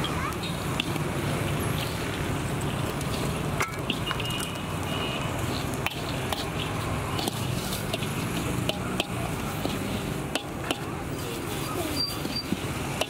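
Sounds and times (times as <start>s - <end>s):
metal scraper stirring sand: 5.8s - 13.0s.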